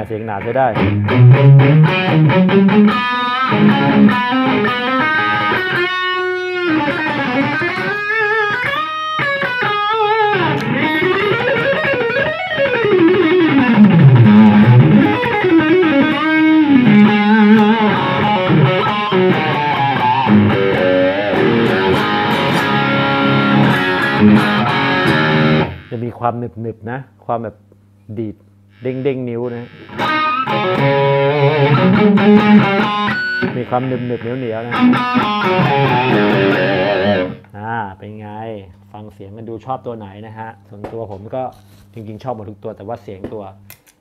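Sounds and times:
distorted electric guitar: 0.0 - 26.1, 28.7 - 37.5.

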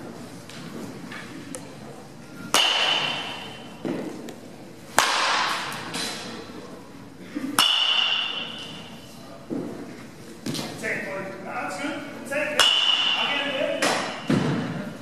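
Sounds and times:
baseball bat hitting ball: 2.5 - 4.1, 4.9 - 6.2, 7.6 - 8.8, 12.6 - 14.8.

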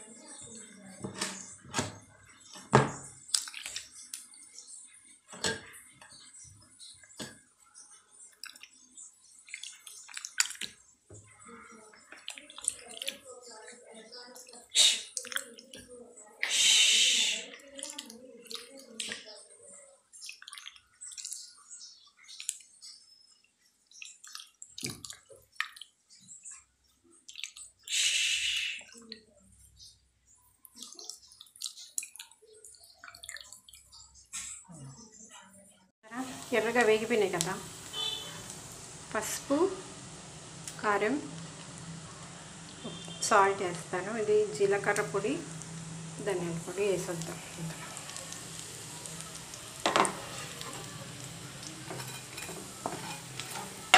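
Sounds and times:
liquid sloshing in a bowl: 2.3 - 4.2, 8.1 - 11.0, 11.9 - 13.3, 20.1 - 21.6, 23.8 - 27.9, 30.6 - 34.0
small water splashes: 3.1 - 4.2, 8.3 - 10.9, 12.0 - 13.3, 20.1 - 22.8, 23.8 - 26.4, 27.1 - 27.9, 30.7 - 34.0, 44.8 - 53.9
wet squelches of kneaded pulp: 3.1 - 4.3, 8.0 - 11.0, 11.8 - 16.4, 17.3 - 27.9, 30.4 - 34.7
steel kitchenware clinking: 49.8 - 53.9.

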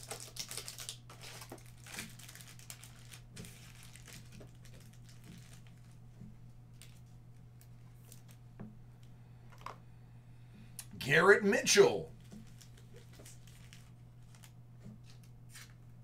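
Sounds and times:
cards and plastic crinkling: 0.0 - 6.0, 6.8 - 8.4, 12.2 - 15.8
steady low hum: 3.1 - 16.0.

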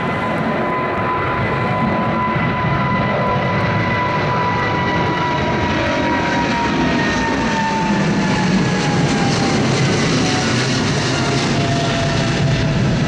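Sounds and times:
jet engines roaring: 0.0 - 13.0.

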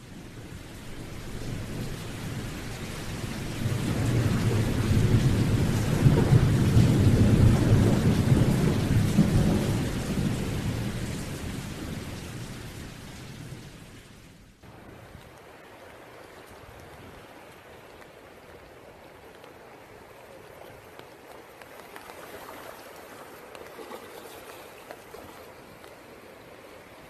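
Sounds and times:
steady rain: 0.0 - 27.0
deep thunder rolling: 3.5 - 13.9.

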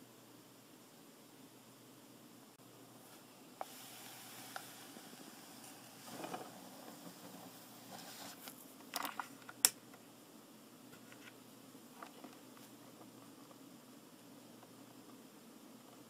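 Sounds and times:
soft rustle: 3.0 - 9.5.

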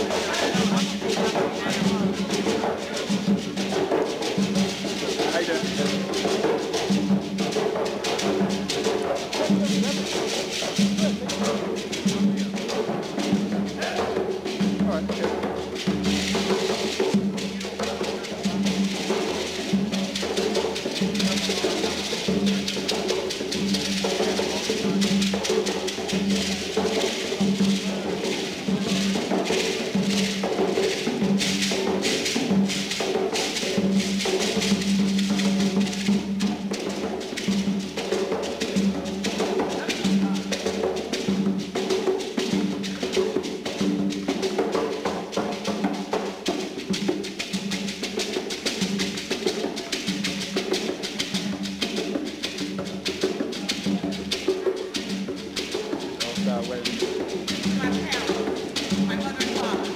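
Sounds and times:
drums beating: 0.0 - 59.9.

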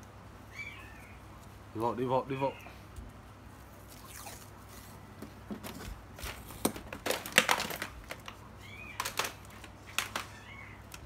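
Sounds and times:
masking tape ripping: 3.8 - 4.6.

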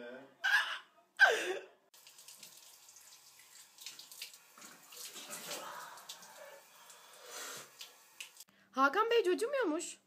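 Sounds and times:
faint running water: 1.9 - 8.5.

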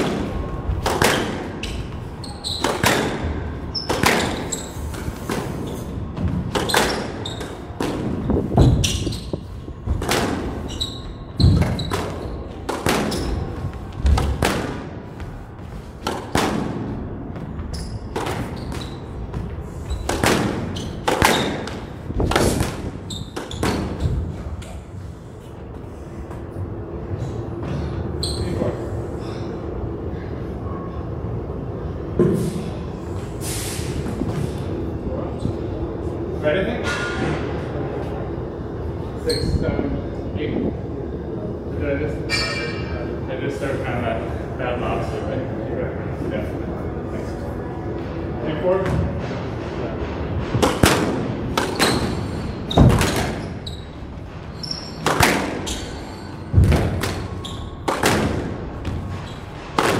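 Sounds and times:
squash ball cracking off rackets: 11.4 - 13.4.

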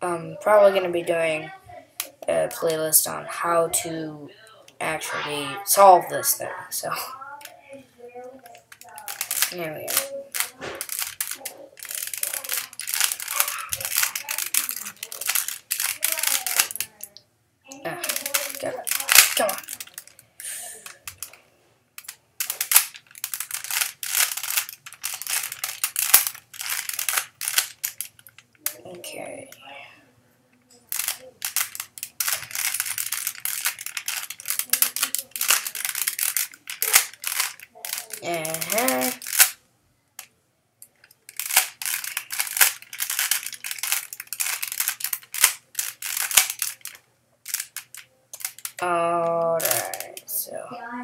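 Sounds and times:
puzzle cube clicking: 8.4 - 21.4, 22.0 - 28.8, 30.9 - 39.6, 40.8 - 50.3.

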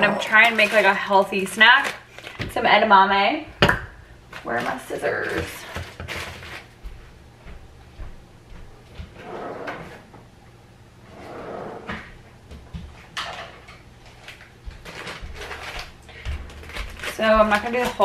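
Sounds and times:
drawers sliding: 9.1 - 10.1, 11.0 - 12.2.

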